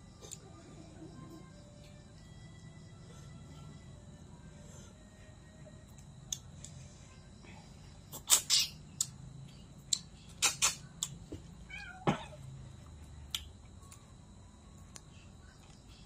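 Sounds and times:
cat meowing: 11.7s - 12.3s.

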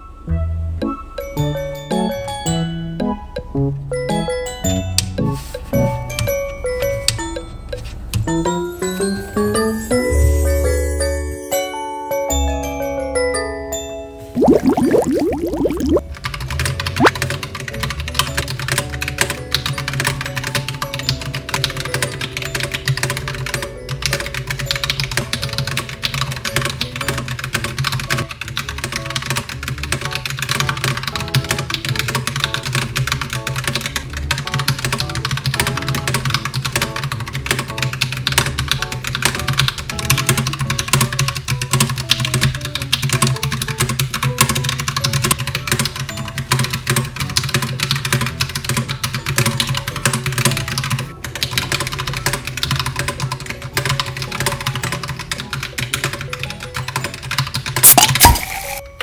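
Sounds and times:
background music: 0.0s - 59.0s
fast typing on mechanical keyboard: 16.1s - 58.3s.

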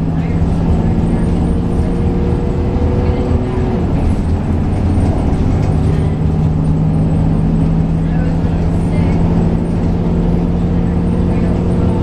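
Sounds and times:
diesel engine drone: 0.0s - 12.0s
road and tyre rumble: 0.0s - 12.0s.

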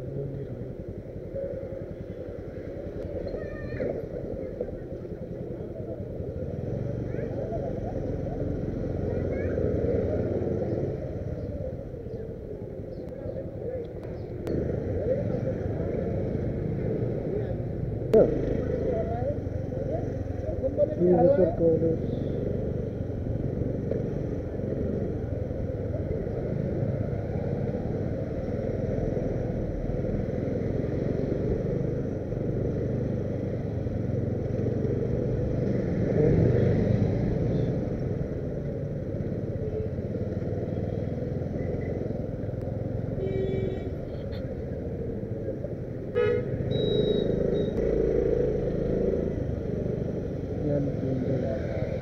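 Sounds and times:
road traffic rumble: 0.0s - 52.0s
vehicle horns tooting: 43.2s - 44.4s, 46.1s - 47.8s.

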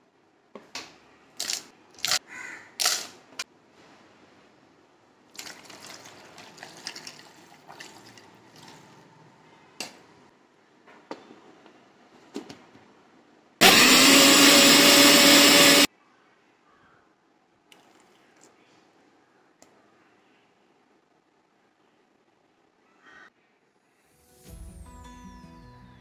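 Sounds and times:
milk pouring into jar: 5.3s - 9.0s, 17.7s - 18.5s
blender motor whirring: 13.6s - 15.9s.

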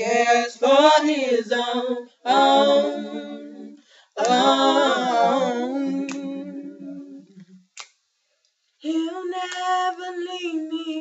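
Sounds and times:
girls singing in harmony: 0.0s - 7.5s.

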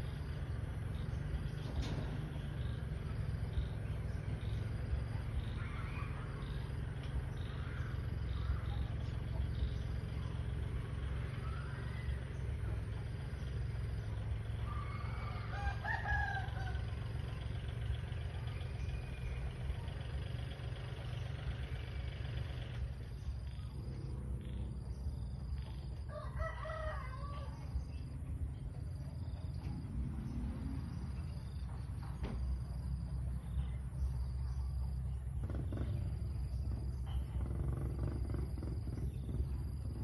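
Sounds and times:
steady low rumble: 0.0s - 26.4s, 27.1s - 40.0s
rooster crowing: 14.6s - 17.2s, 26.0s - 28.0s.

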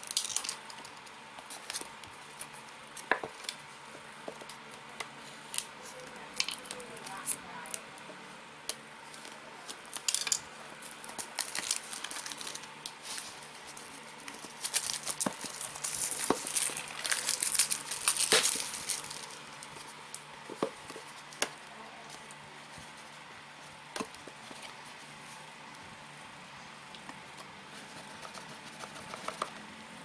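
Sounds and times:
plastic wrap crinkling: 9.1s - 23.2s.

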